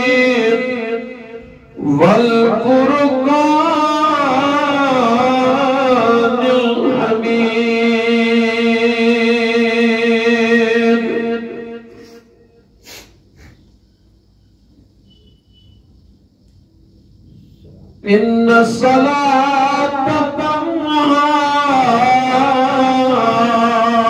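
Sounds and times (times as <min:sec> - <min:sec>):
man chanting: 0:00.0 - 0:12.5, 0:17.6 - 0:24.0.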